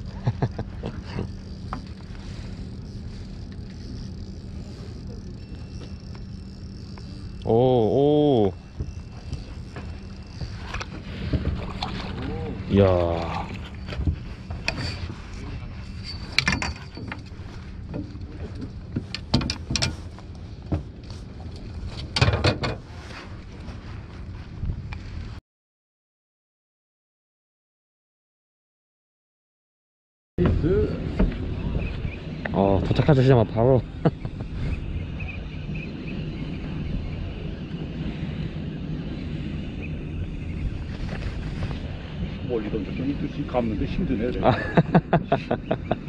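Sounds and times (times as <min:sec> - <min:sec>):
sea noise: 0:00.0 - 0:19.0, 0:30.4 - 0:46.0
boat engine humming: 0:00.0 - 0:22.2, 0:30.4 - 0:46.0
wind: 0:00.0 - 0:25.4, 0:30.4 - 0:46.0.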